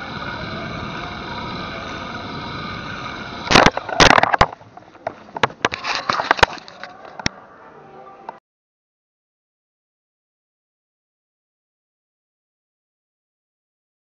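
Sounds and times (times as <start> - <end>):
pulley whirring along steel cable: 0.0 - 7.2.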